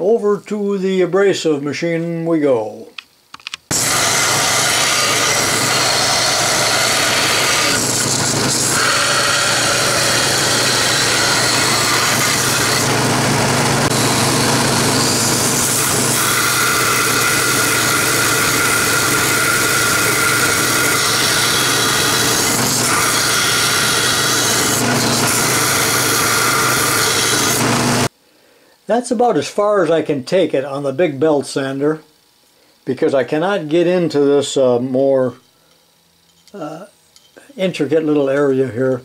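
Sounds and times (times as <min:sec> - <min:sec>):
belt sander grinding metal: 0:03.7 - 0:28.1
motor hum: 0:03.7 - 0:28.1.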